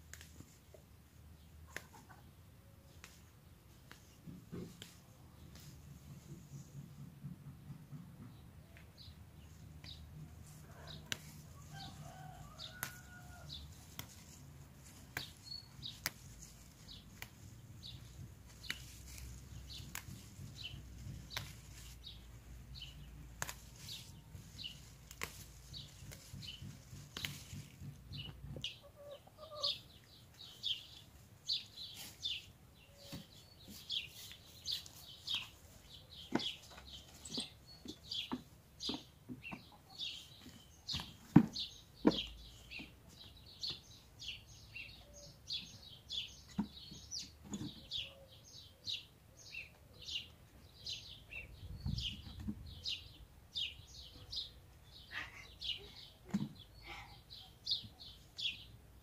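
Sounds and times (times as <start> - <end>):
small birds chirping: 8.2 - 59.0
stems snapping: 11.0 - 28.6
hens clucking: 25.9 - 30.2.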